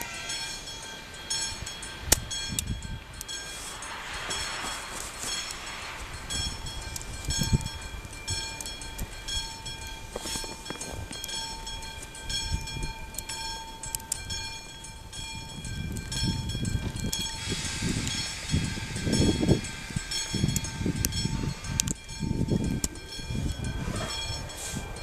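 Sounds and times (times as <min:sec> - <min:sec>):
electric locomotive whine: 0:00.0 - 0:25.0
low train rumble: 0:00.0 - 0:25.0
scattered clicks: 0:20.2 - 0:23.1.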